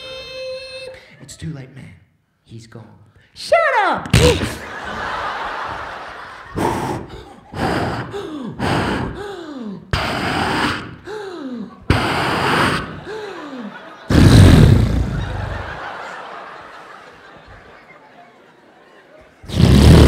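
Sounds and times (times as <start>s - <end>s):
mouth-made harsh blasts: 9.9s - 11.0s, 11.9s - 13.1s, 14.1s - 15.8s, 19.5s - 20.0s.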